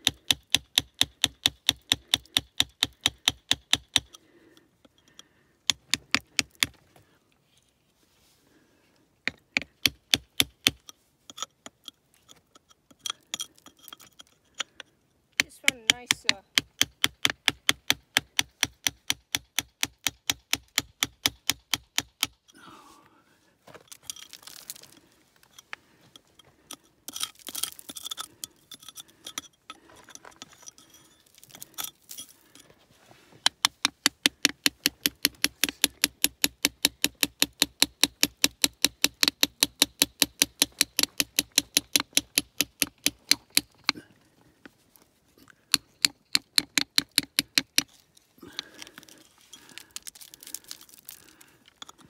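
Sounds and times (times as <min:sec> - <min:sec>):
hammer tapping chisel into rock: 0:00.0 - 0:04.2, 0:04.9 - 0:06.8, 0:09.2 - 0:14.8, 0:15.4 - 0:22.5, 0:33.4 - 0:44.0, 0:45.4 - 0:51.1.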